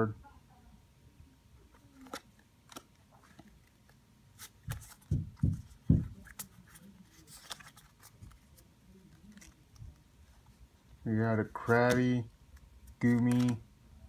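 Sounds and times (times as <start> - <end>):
cards rustling: 1.6 - 13.7
trading cards sliding and clicking: 11.6 - 13.6.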